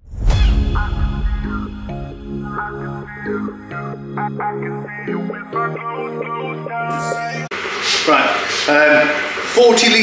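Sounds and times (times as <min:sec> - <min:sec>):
electronic background music: 0:00.0 - 0:07.6.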